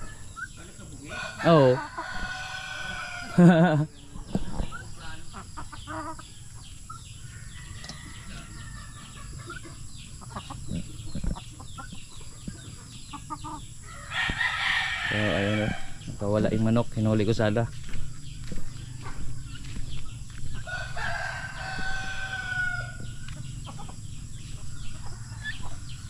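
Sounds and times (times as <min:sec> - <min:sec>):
chickens clucking: 0:00.0 - 0:26.0
rooster crowing: 0:01.0 - 0:03.6, 0:07.2 - 0:09.3, 0:13.8 - 0:16.0, 0:20.6 - 0:23.2.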